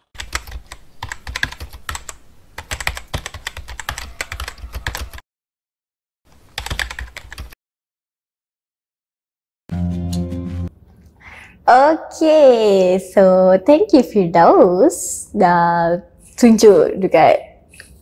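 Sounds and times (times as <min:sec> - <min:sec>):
computer keyboard typing: 0:00.0 - 0:05.2, 0:06.5 - 0:07.6.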